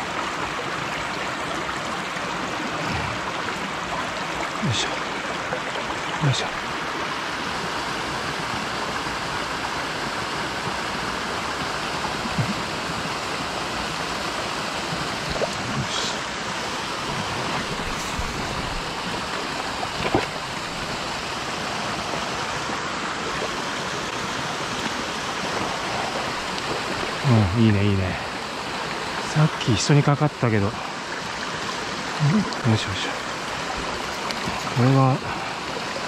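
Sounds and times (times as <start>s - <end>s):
stream running over rocks: 0.0s - 36.0s.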